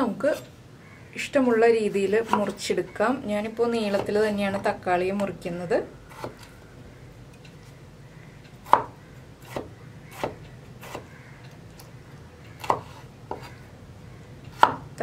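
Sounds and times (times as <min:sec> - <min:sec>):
knife slicing a tomato: 0:09.5 - 0:11.1, 0:12.6 - 0:13.6.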